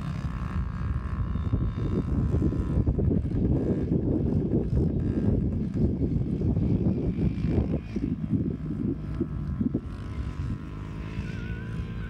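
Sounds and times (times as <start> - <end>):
distant dirt bike engines droning: 0.0 - 12.0
wind buffeting microphone: 0.0 - 12.0.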